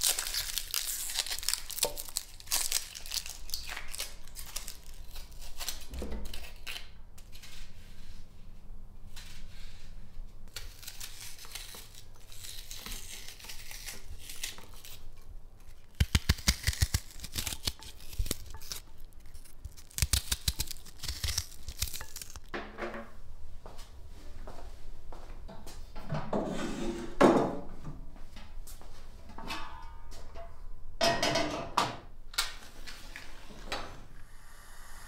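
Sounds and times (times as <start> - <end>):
knife cutting onion: 10.5 - 22.4.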